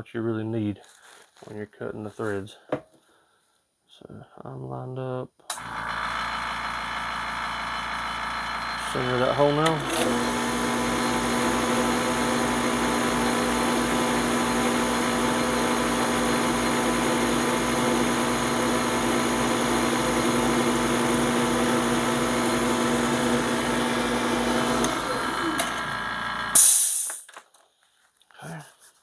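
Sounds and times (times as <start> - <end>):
drill press motor humming: 5.5 - 26.7.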